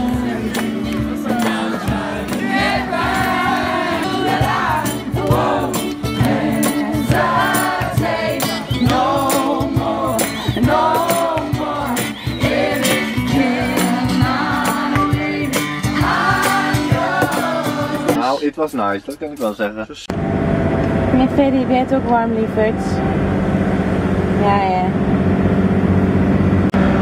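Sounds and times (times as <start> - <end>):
steady beat: 0.0 - 18.2
guitar: 0.0 - 18.5.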